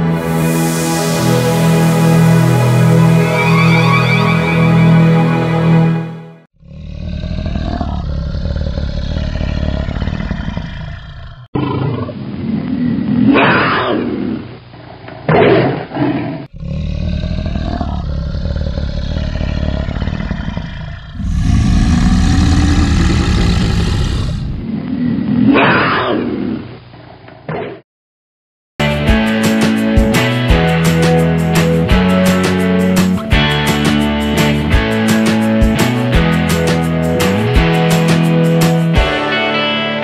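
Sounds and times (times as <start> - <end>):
tiger growling and roaring: 6.6 - 14.2, 15.5 - 25.6.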